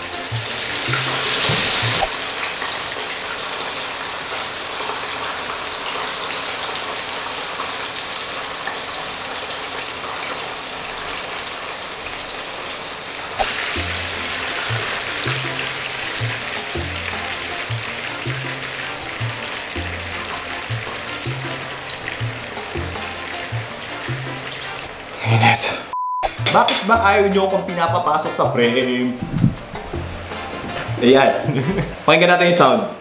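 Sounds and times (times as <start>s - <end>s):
background music with bass line: 0.0s - 2.1s, 13.4s - 24.9s, 26.2s - 32.0s
chicken sizzling in hot oil: 0.0s - 25.4s.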